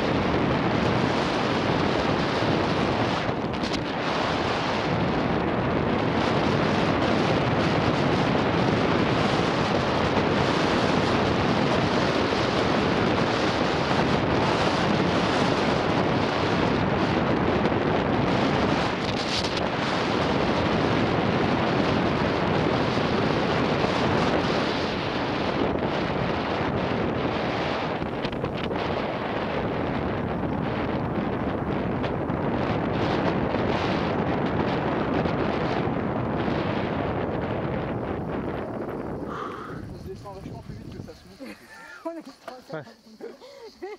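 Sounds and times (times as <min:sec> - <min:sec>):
wind buffeting microphone: 0:00.0 - 0:43.9
sharp hiss: 0:39.2 - 0:40.2.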